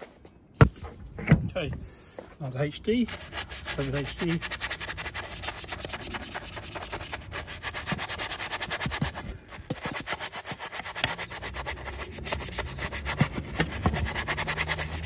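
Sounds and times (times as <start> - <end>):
brush scrubbing wet wheel: 3.0 - 15.0.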